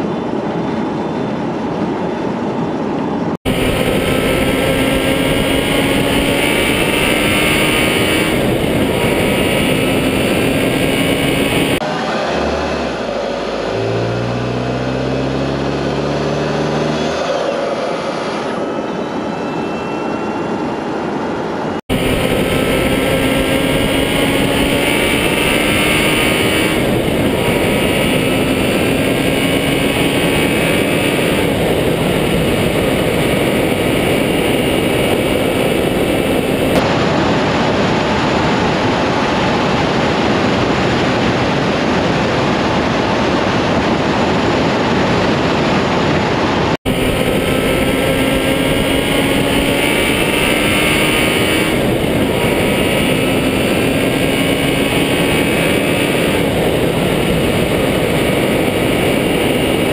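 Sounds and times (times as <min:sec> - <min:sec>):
wind and road noise: 0:00.0 - 0:59.9
faint engine note: 0:03.5 - 0:18.6.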